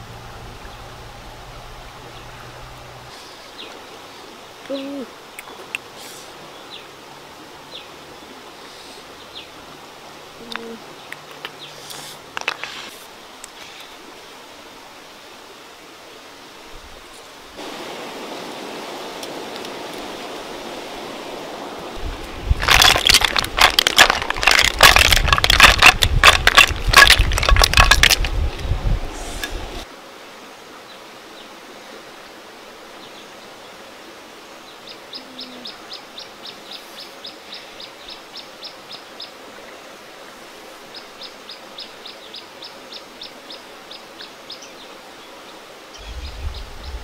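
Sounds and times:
running water hiss: 0.0s - 47.0s
snail shells clattering into basket: 22.6s - 28.3s.

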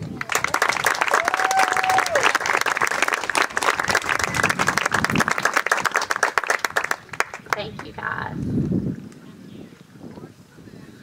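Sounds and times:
crowd applauding: 0.0s - 8.0s
short cheer: 1.0s - 2.4s.

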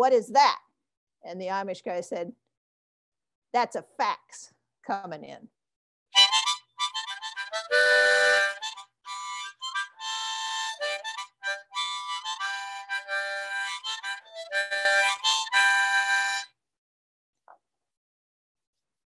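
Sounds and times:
harmonica tune: 6.2s - 16.6s.

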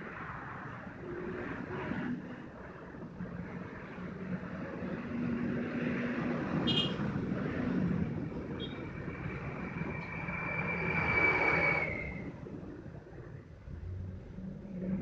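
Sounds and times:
thin high whistle: 10.0s - 12.3s.

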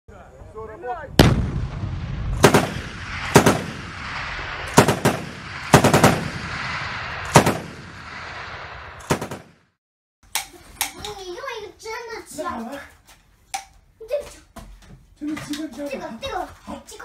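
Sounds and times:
heavy low boom: 1.1s - 9.0s
bursts of rapid gunfire: 2.4s - 8.2s, 9.0s - 9.6s.

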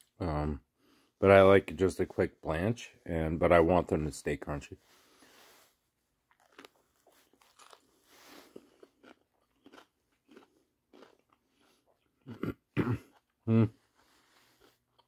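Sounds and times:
person chewing crunchy food: 6.3s - 15.0s.

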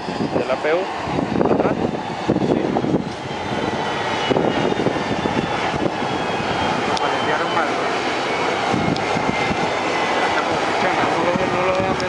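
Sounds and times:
high turbine whine: 0.0s - 12.0s
propeller drone: 0.0s - 12.0s.

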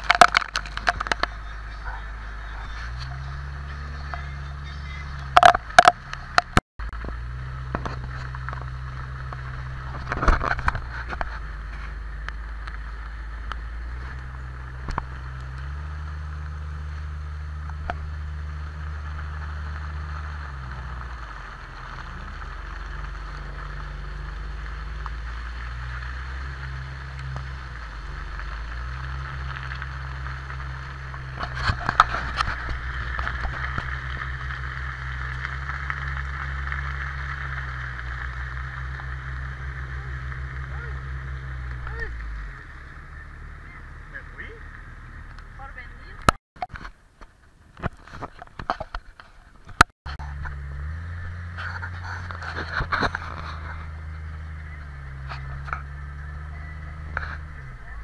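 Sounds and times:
sharp knocks and rattles: 0.0s - 1.4s, 5.2s - 12.0s
vehicle engine running: 0.0s - 58.0s.

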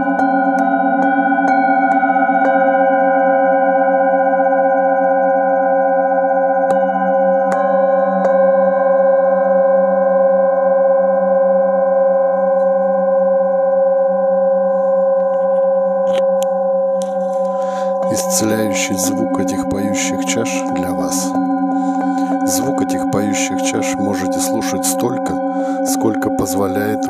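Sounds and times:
singing bowls ringing: 0.0s - 27.0s
light taps on singing bowl: 7.5s - 8.4s.

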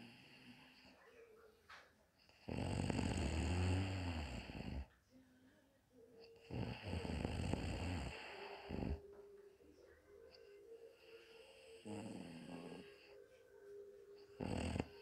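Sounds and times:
woman snoring: 2.3s - 4.9s, 6.3s - 9.1s, 10.8s - 13.2s, 14.3s - 15.0s.

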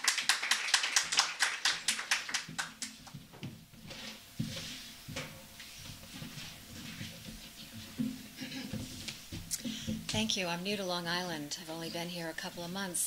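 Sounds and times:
audience applauding: 0.0s - 3.1s.

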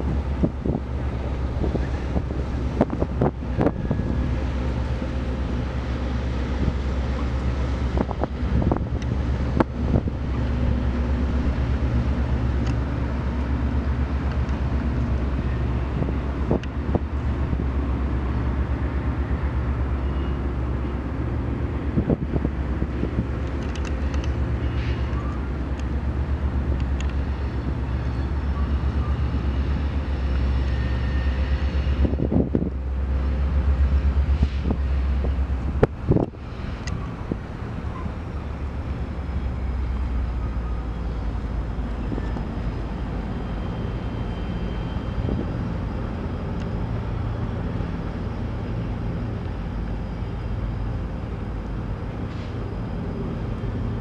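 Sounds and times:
wind on microphone: 0.0s - 4.5s, 7.8s - 11.6s, 31.8s - 32.9s, 34.4s - 37.7s
low engine rumble: 0.0s - 54.0s.

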